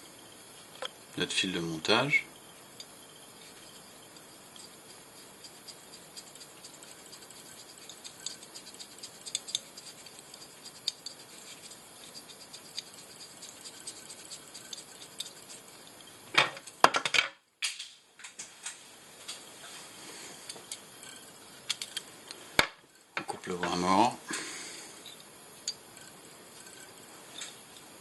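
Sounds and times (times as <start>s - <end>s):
thread scratching on hook: 3.3s - 16.0s, 26.0s - 27.6s.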